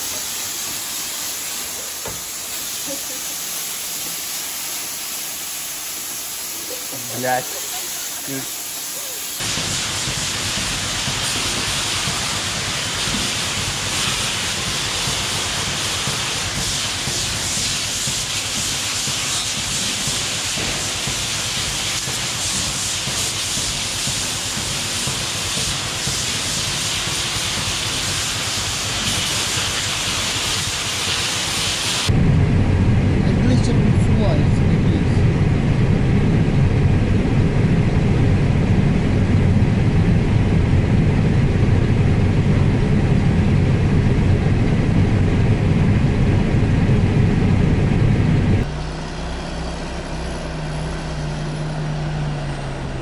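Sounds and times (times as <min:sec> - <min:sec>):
hose nozzle spraying water: 0:00.0 - 0:32.1
low rumble: 0:32.1 - 0:50.0.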